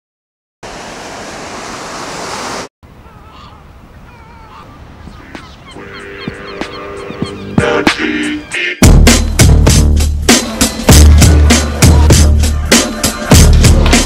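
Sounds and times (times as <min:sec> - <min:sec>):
surf washing: 0:00.6 - 0:03.4
gulls calling: 0:02.9 - 0:08.8.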